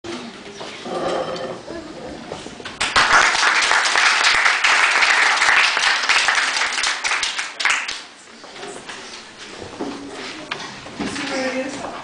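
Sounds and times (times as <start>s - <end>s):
audience clapping: 2.8s - 8.2s.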